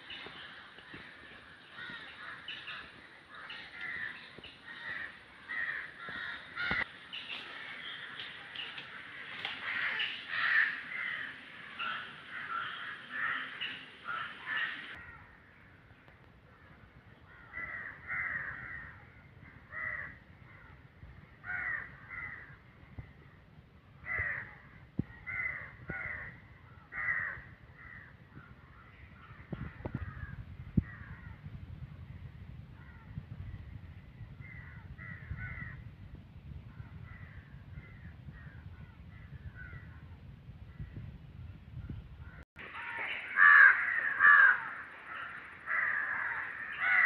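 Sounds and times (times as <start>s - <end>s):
crows cawing: 0.8s - 15.7s, 17.3s - 20.8s, 21.4s - 22.6s, 24.0s - 31.4s, 34.4s - 35.8s, 42.2s - 47.0s
low rumble: 15.2s - 42.5s.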